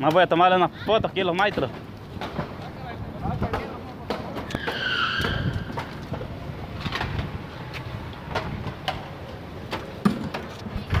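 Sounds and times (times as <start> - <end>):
knocks and clatter of shingle removal: 0.0 - 7.3.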